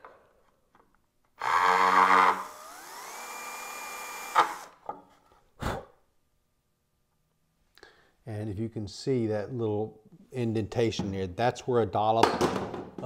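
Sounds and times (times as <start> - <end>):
cordless drill whine: 1.4 - 4.8
drill click: 1.4 - 4.8.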